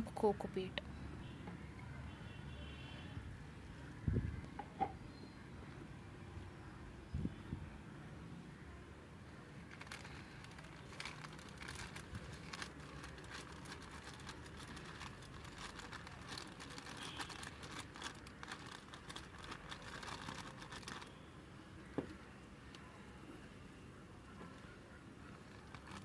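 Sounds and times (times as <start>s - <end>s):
plastic bag crinkling: 9.7s - 21.2s, 25.3s - 26.0s.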